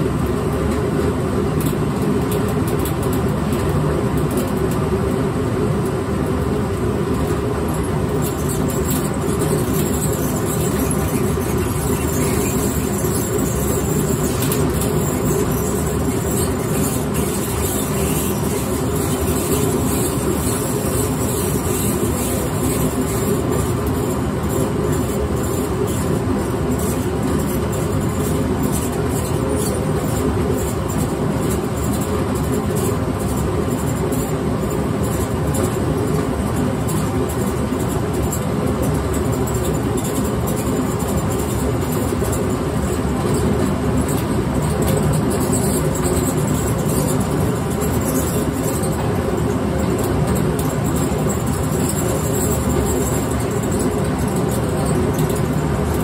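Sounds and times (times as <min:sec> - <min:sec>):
grain mill running: 0:00.1 - 0:32.3.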